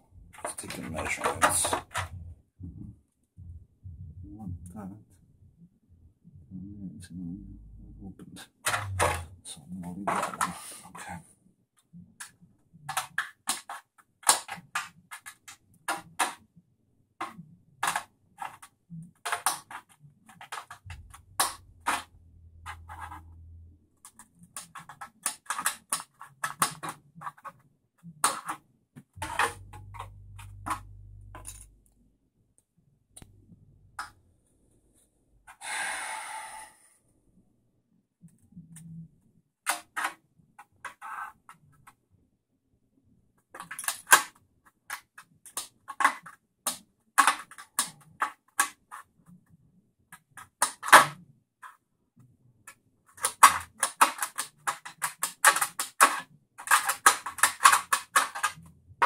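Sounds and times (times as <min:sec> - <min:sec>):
low hum: 0:02.0 - 0:09.5, 0:29.2 - 0:32.2
stiff plastic clicking and crackling: 0:08.4 - 0:10.6, 0:12.1 - 0:16.5, 0:17.2 - 0:23.2, 0:24.0 - 0:32.0, 0:43.4 - 0:49.5, 0:52.6 - 0:59.0.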